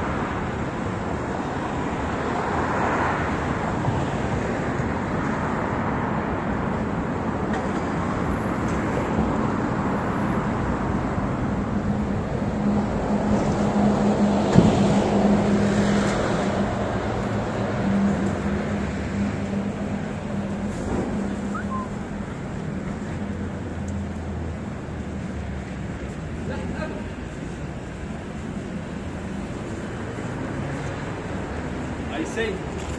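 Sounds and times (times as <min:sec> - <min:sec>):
cars going by: 0:00.0 - 0:32.9
heavy vehicle engine humming: 0:16.5 - 0:32.8.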